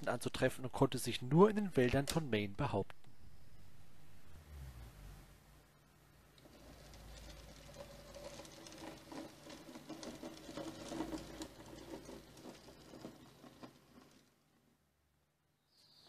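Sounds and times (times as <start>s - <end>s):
wheels clicking on rails: 6.4s - 14.4s.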